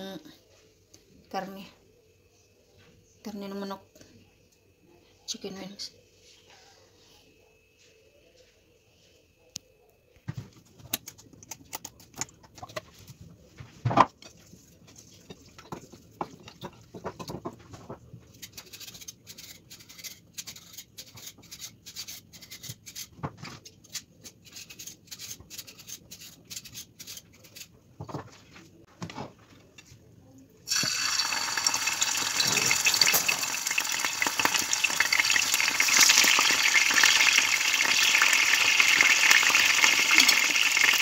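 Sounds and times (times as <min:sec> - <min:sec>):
oil crackling in a frying pan: 0:30.7 - 0:41.0.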